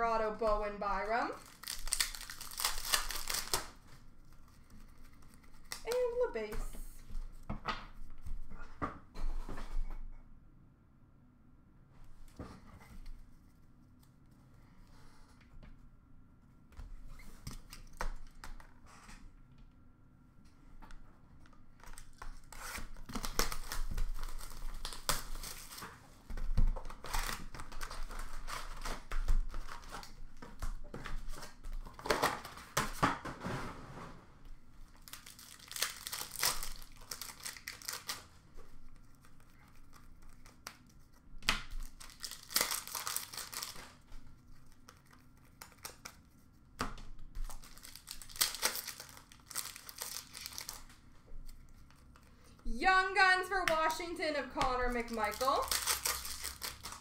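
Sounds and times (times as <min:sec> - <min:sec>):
card pack wrappers crinkling and tearing: 0:01.3 - 0:06.2, 0:21.7 - 0:32.8, 0:34.9 - 0:46.4, 0:47.3 - 0:52.4, 0:53.8 - 0:57.0.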